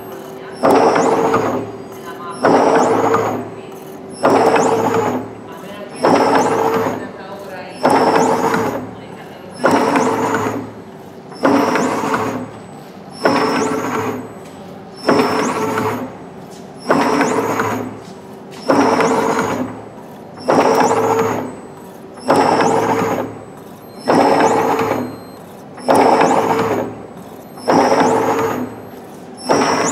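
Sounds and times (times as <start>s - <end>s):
machine whirring with rising whine: 0.0s - 29.9s.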